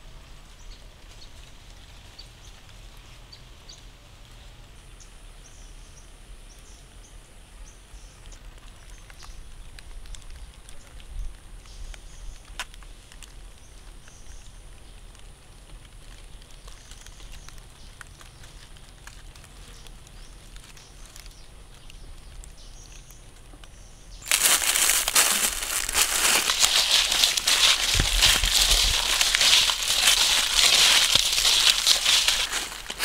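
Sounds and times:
dry leaves crunching and crackling: 24.2 - 33.0.

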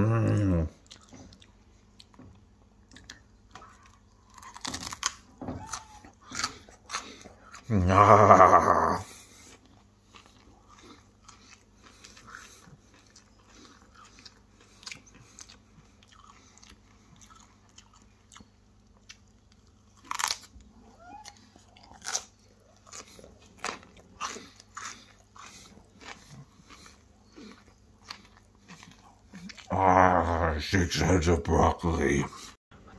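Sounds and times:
short vocal sound: 0.0 - 0.8
crunching broccoli: 0.2 - 31.2.

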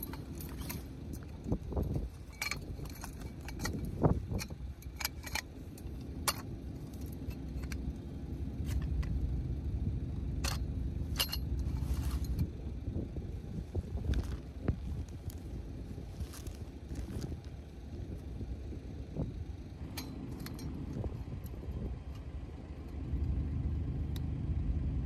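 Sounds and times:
tent poles clinking: 0.0 - 22.5
wind on microphone: 1.2 - 4.8, 12.1 - 19.6.

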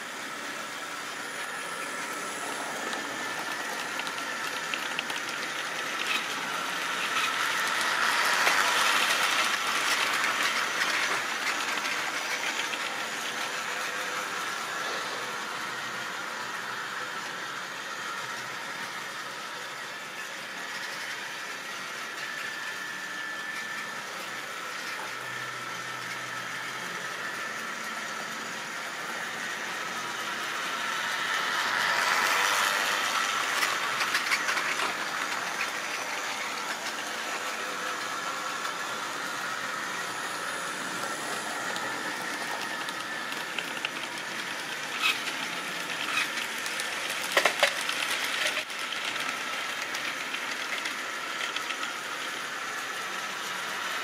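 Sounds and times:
model train running on track: 0.0 - 54.0
sharp clicks from train wheels: 2.9 - 13.4, 44.8 - 52.3.

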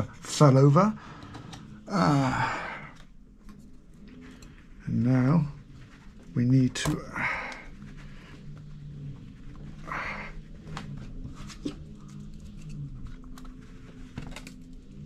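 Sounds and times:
low steady hum: 0.0 - 15.0
person breathing out: 1.0 - 3.1, 9.8 - 10.5.

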